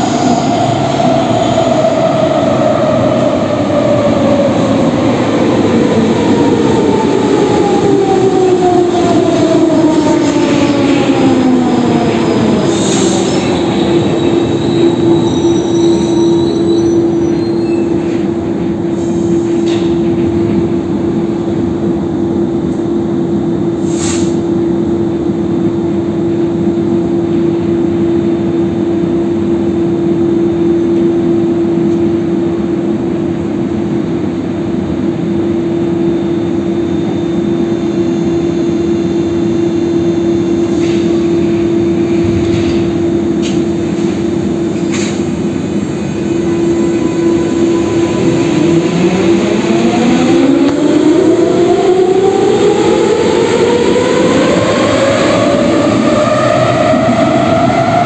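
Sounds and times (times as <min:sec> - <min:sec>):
train equipment humming: 0:34.3 - 0:58.0.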